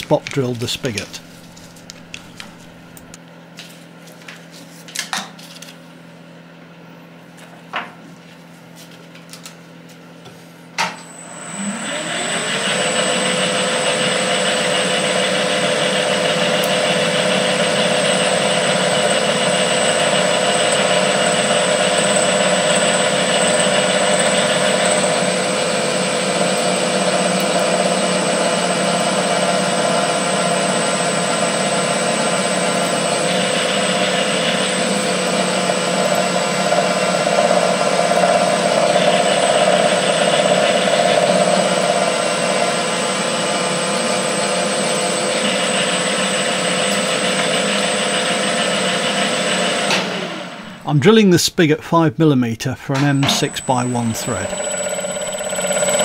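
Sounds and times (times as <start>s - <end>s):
milling spindle whine: 11.1s - 50.8s, 53.0s - 56.0s.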